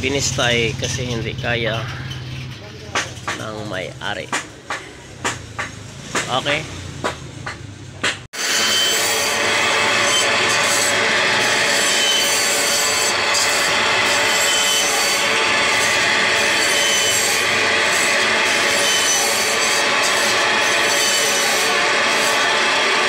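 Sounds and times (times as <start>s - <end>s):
electric band saw cutting meat: 8.4s - 23.0s.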